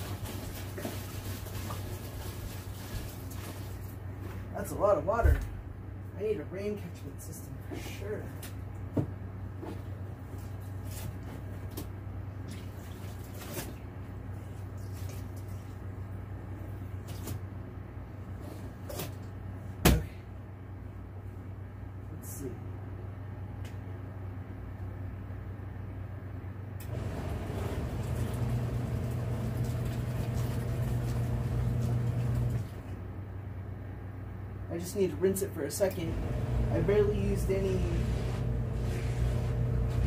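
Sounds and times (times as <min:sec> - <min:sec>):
washing machine motor hum: 0:00.0 - 0:06.8, 0:26.6 - 0:33.8, 0:35.8 - 0:40.0
steady low hum: 0:00.0 - 0:40.0
short water splashes: 0:12.4 - 0:13.9, 0:26.9 - 0:32.5.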